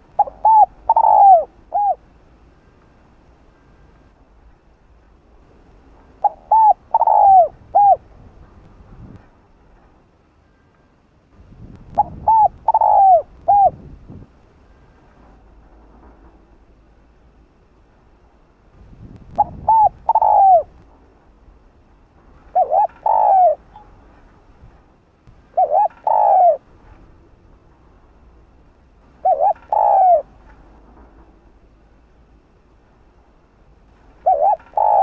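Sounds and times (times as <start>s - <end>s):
dove cooing: 0.0s - 2.1s, 6.2s - 8.0s, 12.0s - 13.8s, 19.4s - 20.8s, 22.4s - 23.8s, 25.5s - 26.7s, 29.2s - 30.4s, 34.2s - 35.0s.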